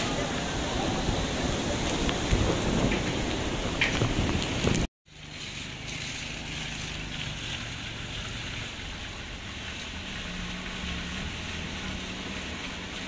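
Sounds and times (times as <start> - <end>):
tyres hissing on wet road: 0.0 - 13.0
car engines humming: 5.1 - 13.0.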